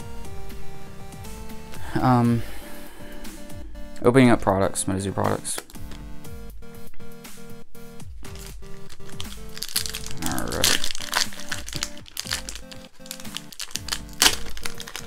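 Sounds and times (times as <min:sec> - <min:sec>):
eight-bit lo-fi music: 0:00.0 - 0:15.0
foil wrapper crinkling: 0:08.3 - 0:15.0.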